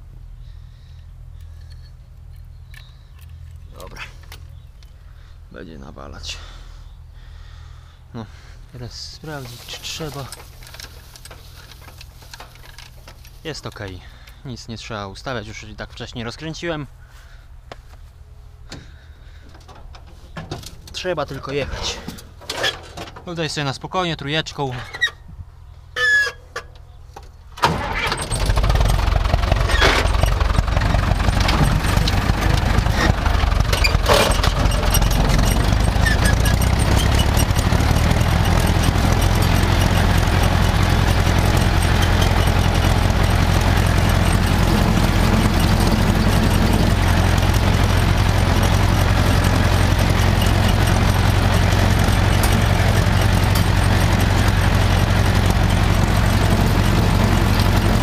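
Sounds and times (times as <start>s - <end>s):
tractor engine running under load: 9.0s - 14.4s, 27.6s - 58.0s.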